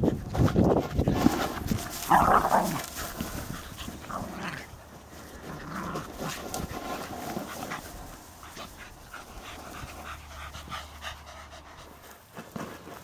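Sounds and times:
ball knocking and dogs scuffling: 0.1 - 10.1.

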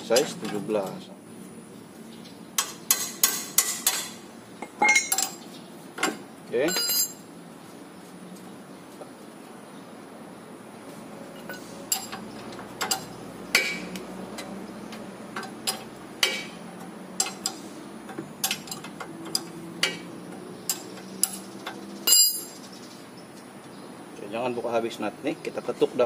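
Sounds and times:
spanner clicking on metal: 17.2 - 22.6.

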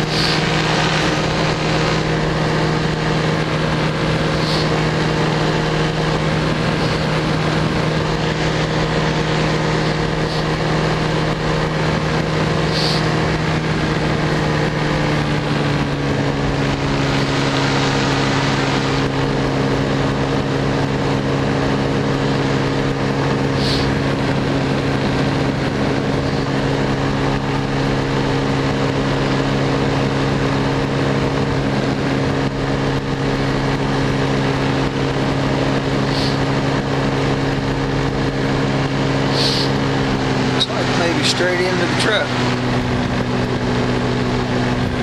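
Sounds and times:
small aircraft engine running: 0.0 - 45.0
brief hisses: 39.4 - 39.7.

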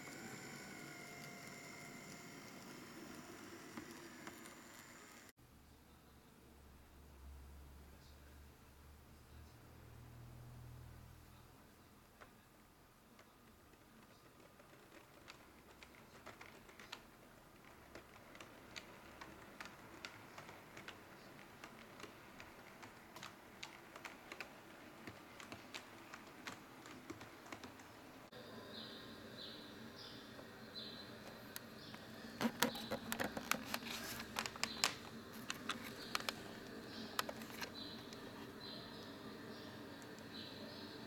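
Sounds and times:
model train wheels clicking: 0.0 - 5.3, 13.2 - 28.2.

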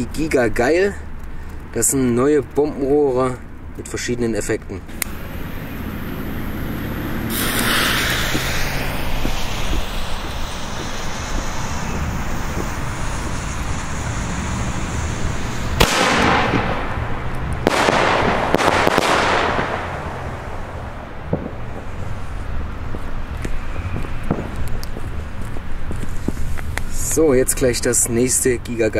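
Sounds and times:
firework launch bangs: 4.9 - 22.0, 24.2 - 24.7
firework hissing: 4.9 - 27.4
firework rushing hiss: 4.9 - 28.4.

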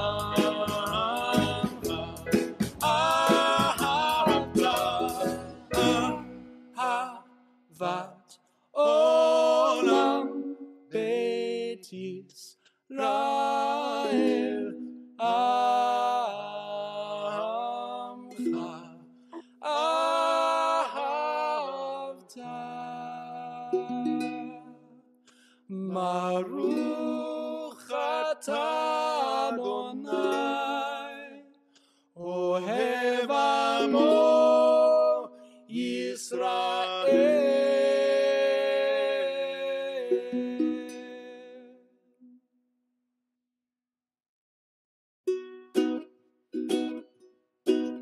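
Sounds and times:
plucked acoustic guitar: 0.0 - 6.7
person singing long held notes: 0.0 - 7.2, 8.8 - 12.0, 12.9 - 24.7, 25.7 - 31.4, 32.2 - 41.7.

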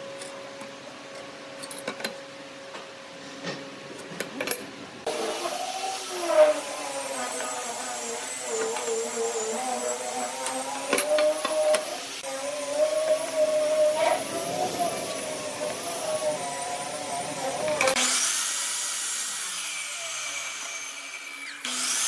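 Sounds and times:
continuous wavering tone: 12.2 - 18.0.

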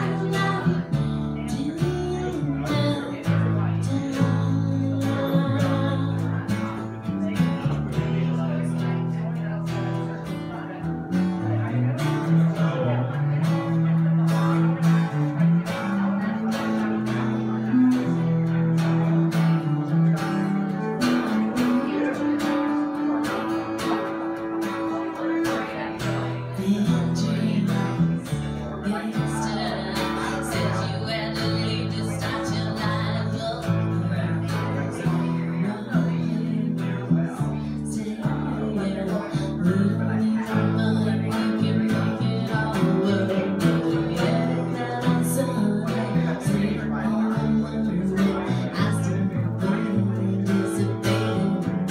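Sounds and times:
woman singing: 0.0 - 7.4, 16.2 - 22.0, 25.2 - 51.9
strummed acoustic guitar: 0.0 - 51.9
upright bass notes: 0.0 - 51.9.

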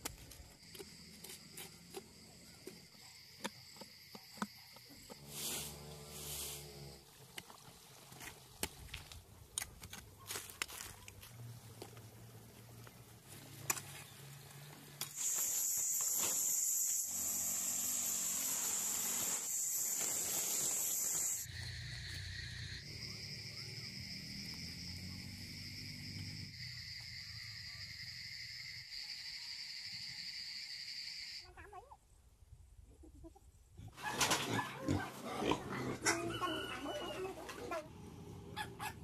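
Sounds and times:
insect chorus: 14.0 - 31.5
high-pitched insect shrill: 15.1 - 24.5.

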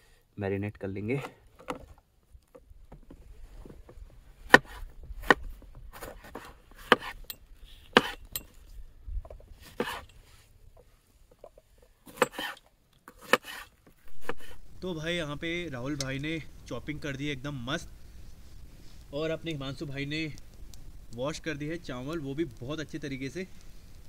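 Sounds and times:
knife chopping on wooden board: 6.8 - 7.2, 7.9 - 8.2, 9.7 - 10.0.

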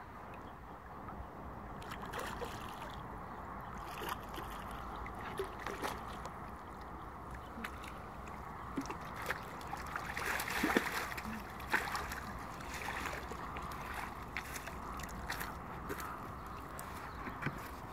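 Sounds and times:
water sloshing and splashing: 0.2 - 17.9.

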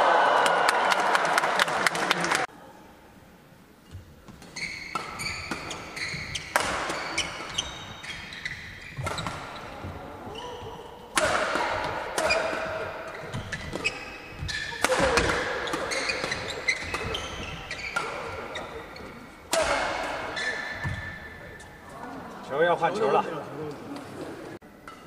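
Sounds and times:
shoes squeaking on court: 3.8 - 10.9, 11.6 - 21.9
rackets hitting shuttlecock: 4.3 - 21.6
crowd noise and voices: 18.2 - 24.6.

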